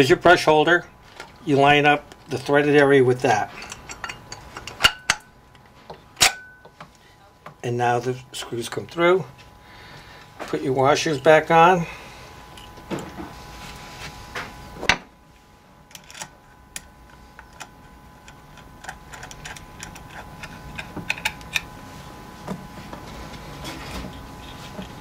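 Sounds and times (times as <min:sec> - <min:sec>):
metal parts clicking on metal housing: 0:03.2 - 0:05.6, 0:15.9 - 0:16.9, 0:17.5 - 0:21.7.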